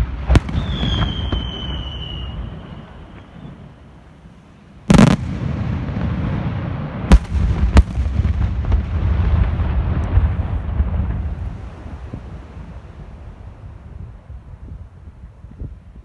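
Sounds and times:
rumble and crackle of fireworks: 0.0 - 16.0.

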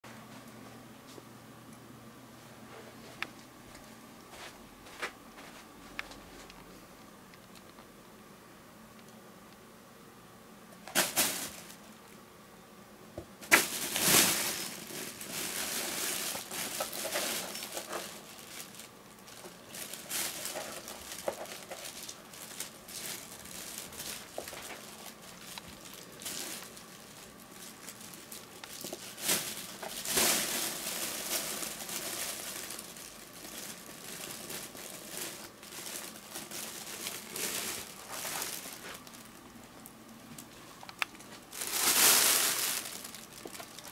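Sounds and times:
fabric play tunnel crinkling: 10.8 - 12.0, 13.4 - 43.9.

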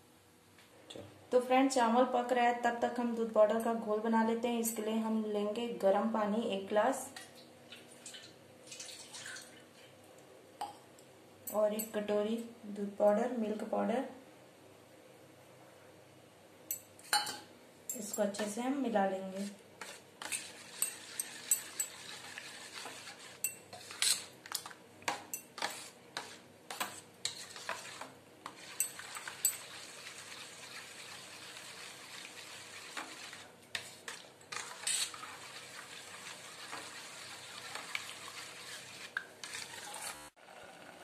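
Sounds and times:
liquid swishing: 19.8 - 24.3, 25.6 - 40.4
metal spoon clinking in steel bowl: 20.8 - 22.0, 28.7 - 29.7.

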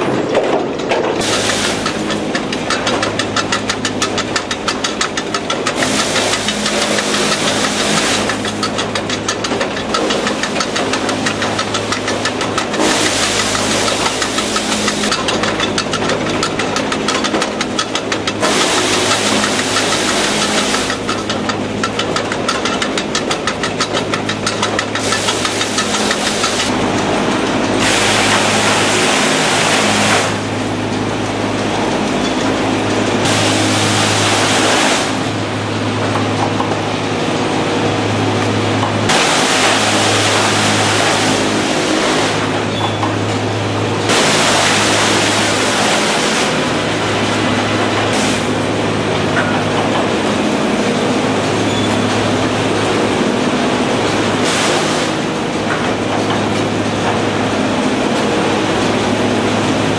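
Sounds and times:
conveyor chain clattering: 0.0 - 33.6
machine humming: 0.0 - 59.9.

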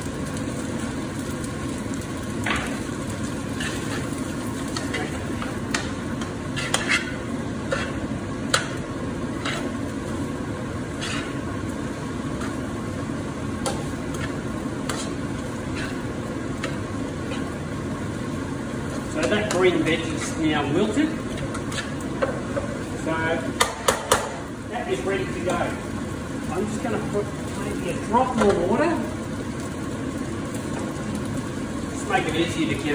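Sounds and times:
noodles sizzling in a wok: 0.0 - 32.9
utensil scraping a wok: 2.4 - 12.8, 13.6 - 17.9, 18.9 - 22.8.

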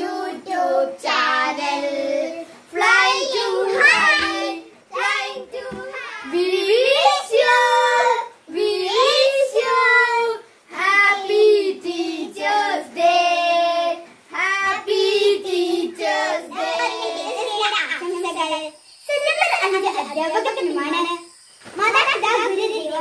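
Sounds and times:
children singing: 0.0 - 18.6.

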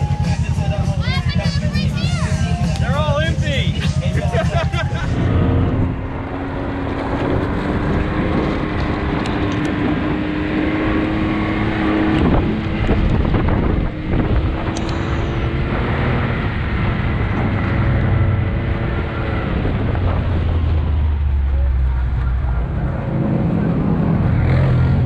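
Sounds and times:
engine running: 0.0 - 25.0
wind buffeting microphone: 11.5 - 21.2.

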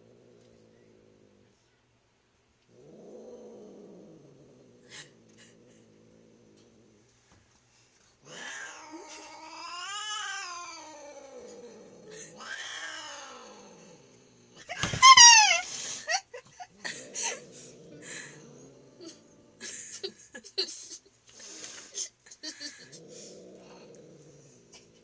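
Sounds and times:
cat screeching: 14.8 - 15.7
cat yowling: 14.9 - 15.6.

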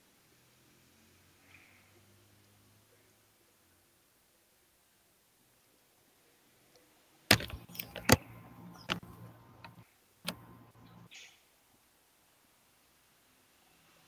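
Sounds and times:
keyboard and mouse clicks: 7.3 - 11.0.

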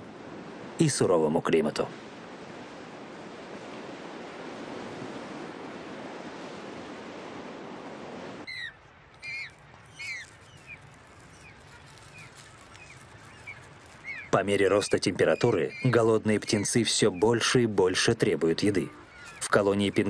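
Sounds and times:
ocean surf washing: 0.0 - 20.0
short falling bird calls: 8.4 - 17.4, 18.7 - 20.0.

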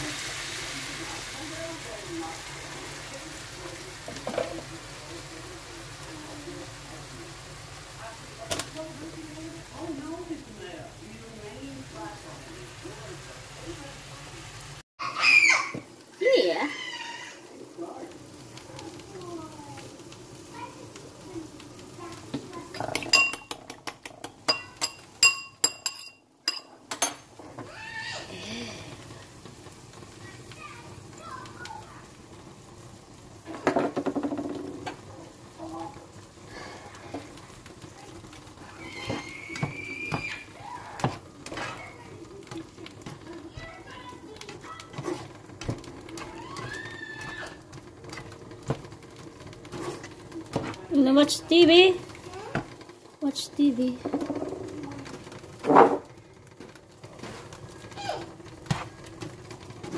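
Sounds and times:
metal utensil clinking on dish: 22.8 - 23.6, 24.5 - 27.3
spatula knocking on pan: 33.5 - 34.9, 39.0 - 40.4
spatula scraping frying pan: 38.2 - 52.8, 53.6 - 59.9.

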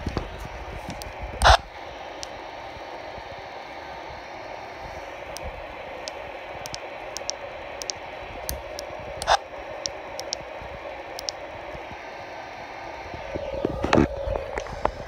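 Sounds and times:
radio static hissing: 0.0 - 15.0
radio button clicks: 0.9 - 1.6, 5.3 - 10.4.

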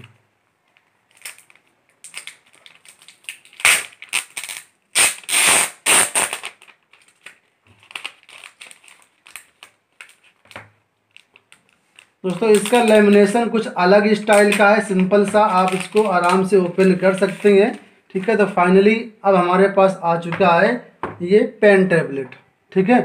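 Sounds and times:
plastic film crinkling: 0.7 - 17.9.

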